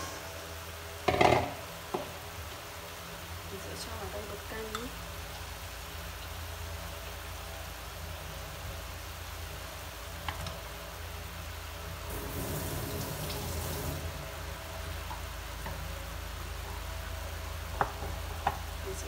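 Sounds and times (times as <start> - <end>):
meat sizzling in a pot: 12.0 - 16.6.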